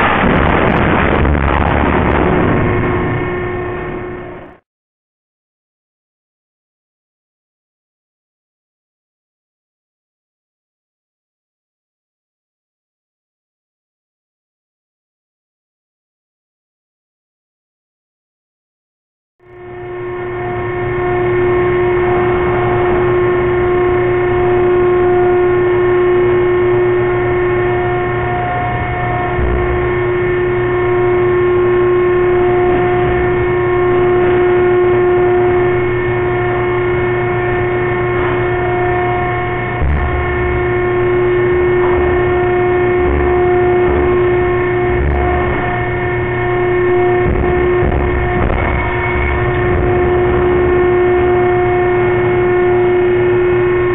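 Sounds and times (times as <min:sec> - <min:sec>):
machinery drone: 0:00.0 - 0:04.6, 0:19.4 - 0:53.9
short low rumbles: 0:00.0 - 0:04.6, 0:39.8 - 0:52.3.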